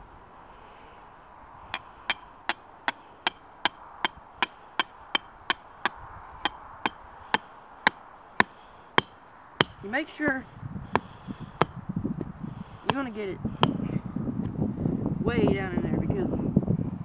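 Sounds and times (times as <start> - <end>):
hammer striking metal stake: 1.7 - 11.8, 12.9 - 13.8.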